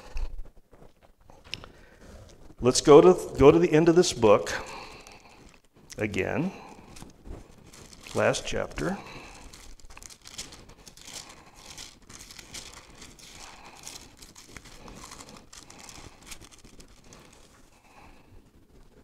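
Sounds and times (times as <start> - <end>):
book pages being leafed through: 6.6 - 17.7.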